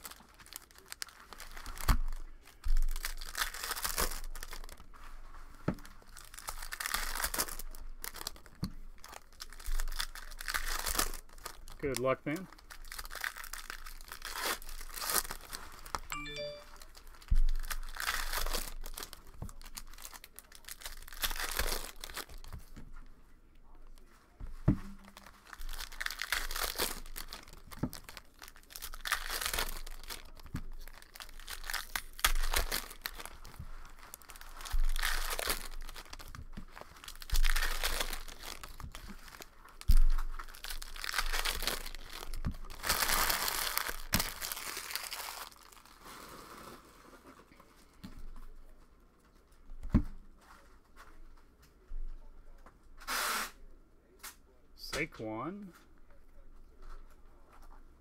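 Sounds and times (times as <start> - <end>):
foil wrappers tearing and crinkling: 0.0 - 22.8, 24.9 - 47.3.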